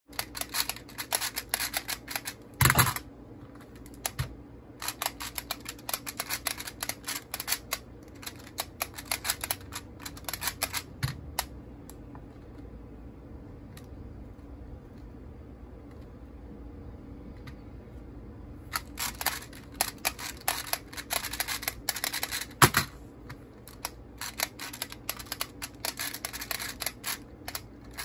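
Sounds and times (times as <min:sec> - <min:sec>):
puzzle dials clicking: 0:00.1 - 0:03.0, 0:04.8 - 0:11.5, 0:18.7 - 0:22.6, 0:23.7 - 0:28.0.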